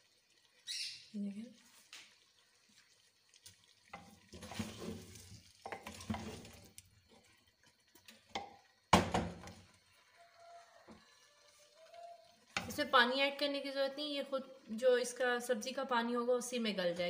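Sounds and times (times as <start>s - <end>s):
spoon scraping in clay pot: 4.3s - 7.3s.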